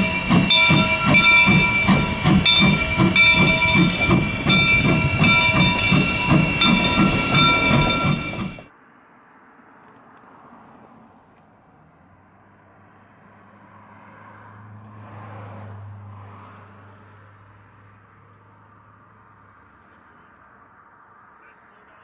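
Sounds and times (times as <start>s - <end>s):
car driving past: 8.8s - 19.8s.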